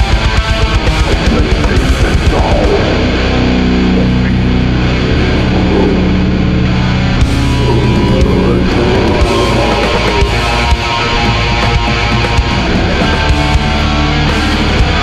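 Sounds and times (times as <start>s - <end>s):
heavy distorted guitar chords: 0.0s - 15.0s.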